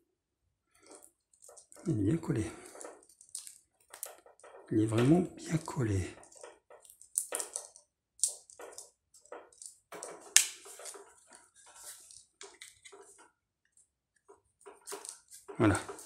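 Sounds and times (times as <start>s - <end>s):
plastic parts crackling: 0.8s - 13.3s, 14.2s - 16.0s.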